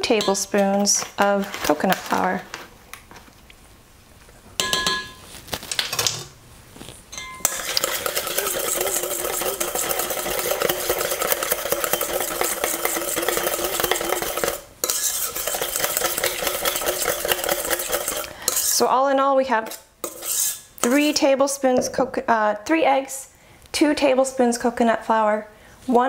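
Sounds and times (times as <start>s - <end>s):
metal clinks against bowl: 7.1s - 14.6s
whisk beating in metal bowl: 7.4s - 18.8s, 20.0s - 21.2s.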